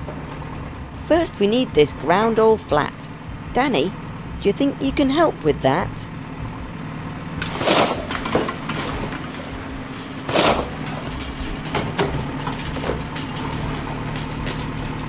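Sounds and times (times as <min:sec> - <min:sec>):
bulldozer engine running: 0:00.0 - 0:15.0.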